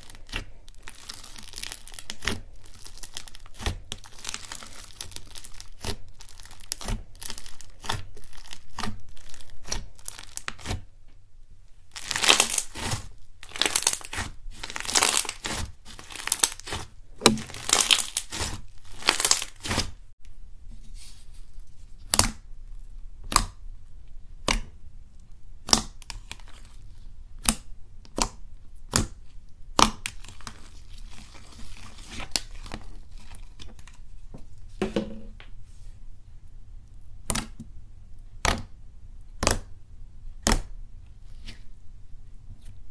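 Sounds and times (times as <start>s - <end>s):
slime crackling and popping: 0.0s - 10.9s, 11.9s - 20.0s, 27.4s - 34.0s, 40.4s - 40.7s.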